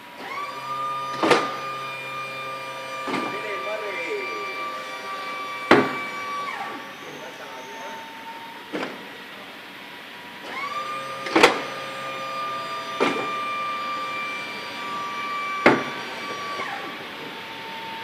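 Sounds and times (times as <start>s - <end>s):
hydraulic pump whine: 0.0s - 18.0s
heavy clunk of thrust reverser doors: 0.2s - 3.4s, 4.8s - 6.8s, 8.6s - 9.1s, 10.4s - 17.1s.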